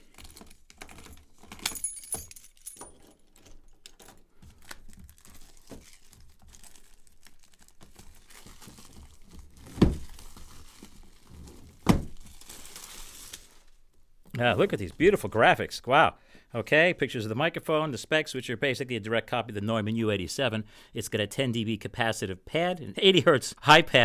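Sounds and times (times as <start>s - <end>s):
plastic wrap crinkling and tearing: 0.0s - 1.6s, 3.8s - 13.9s
case thumping: 9.7s - 10.0s, 11.8s - 12.2s.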